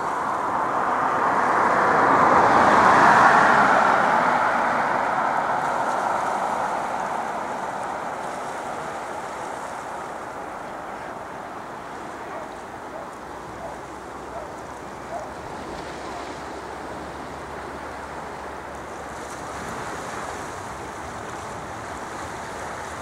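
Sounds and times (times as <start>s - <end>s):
jet engines rushing: 0.0s - 13.4s.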